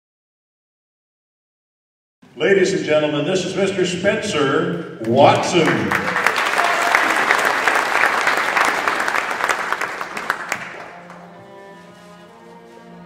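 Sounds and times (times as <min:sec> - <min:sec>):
audience applauding: 0:05.0 - 0:12.2
slow instrumental music: 0:10.0 - 0:13.0.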